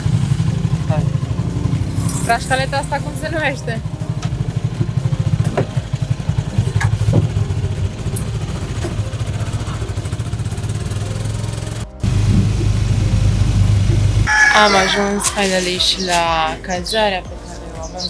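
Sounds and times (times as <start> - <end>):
motorcycle engine rumbling: 0.0 - 18.0
knocks and rattles: 4.0 - 10.1.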